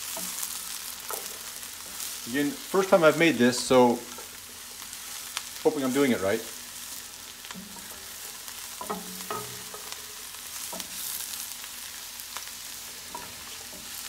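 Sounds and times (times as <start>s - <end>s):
vegetables sizzling in a skillet: 0.0s - 14.0s
spatula knocking and scraping pan: 7.4s - 11.2s.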